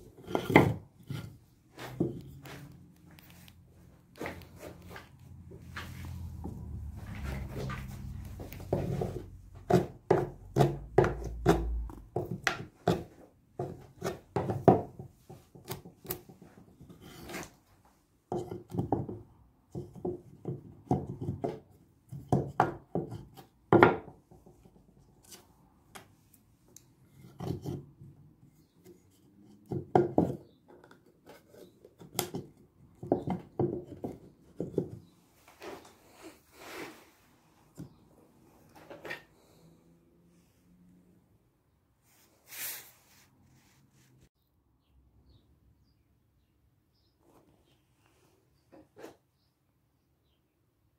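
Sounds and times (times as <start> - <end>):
wood scraping on wood: 0.0 - 3.5, 4.1 - 17.7, 27.1 - 28.0, 28.6 - 39.6
wood tapping and knocking: 0.2 - 2.6, 8.4 - 16.7, 18.3 - 24.8, 29.7 - 31.1, 31.9 - 35.1.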